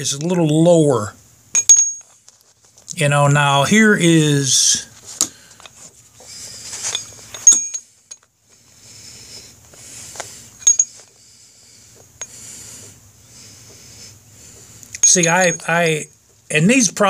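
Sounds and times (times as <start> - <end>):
brake pads rustling in hands: 2.0 - 2.9, 4.9 - 11.2.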